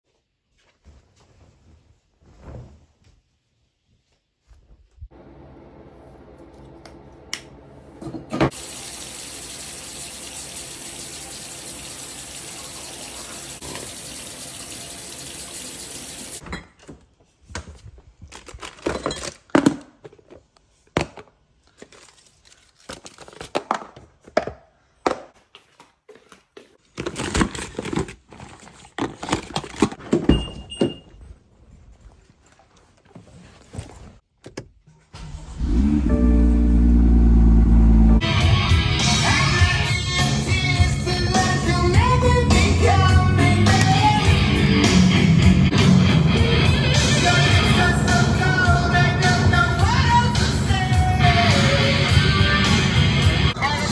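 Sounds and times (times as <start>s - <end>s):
sink tap running: 8.5s - 16.4s.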